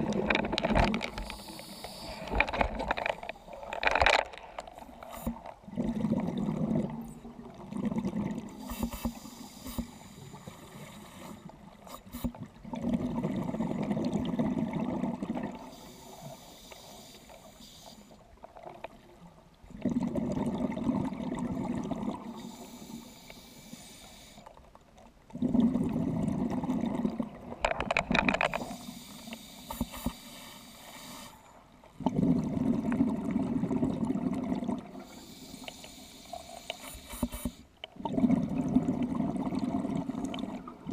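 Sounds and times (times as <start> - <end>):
exhaled bubbles underwater: 0.0 - 2.8, 4.9 - 16.4, 18.4 - 23.1, 25.2 - 28.9, 31.8 - 35.5, 37.8 - 40.9
regulator inhalation hiss: 1.2 - 2.4, 8.6 - 12.3, 15.7 - 18.2, 22.4 - 24.5, 28.6 - 31.5, 35.0 - 37.6.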